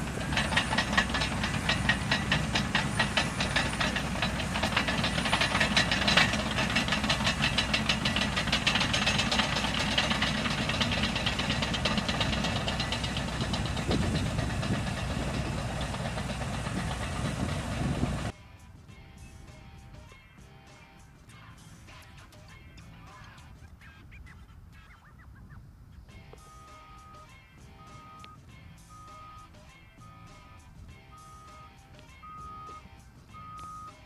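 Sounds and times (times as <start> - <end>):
rapid even clatter: 0.0 - 18.3
diesel engines running: 0.0 - 18.4, 26.1 - 34.0.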